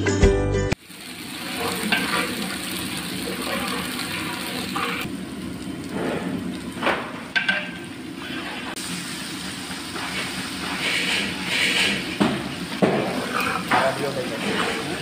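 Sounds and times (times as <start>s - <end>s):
spices sizzling in hot oil: 0.8s - 15.0s
metal ladle scraping a pot: 3.4s - 5.1s, 10.6s - 12.2s, 13.0s - 15.0s.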